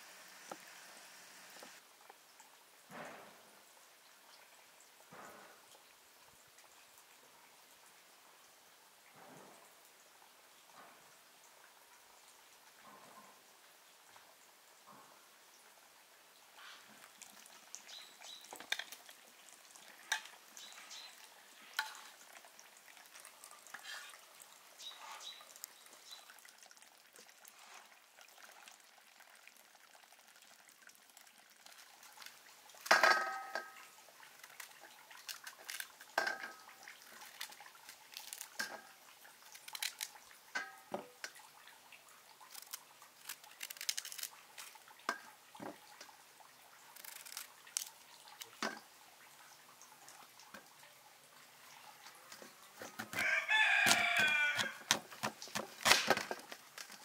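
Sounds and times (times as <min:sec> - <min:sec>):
pieces clinking on metal tray: 0:32.9 - 0:33.8.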